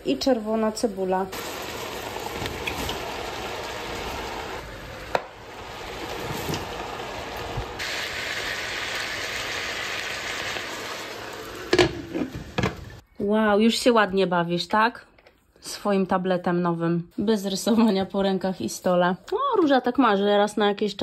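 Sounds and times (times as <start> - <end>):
chicken sizzling in hot oil: 0.0 - 13.0.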